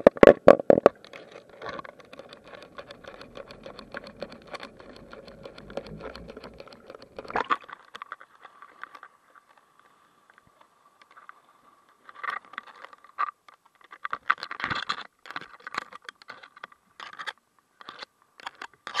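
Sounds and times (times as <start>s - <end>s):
scratchy rubbing on camera case: 1.2s - 7.4s.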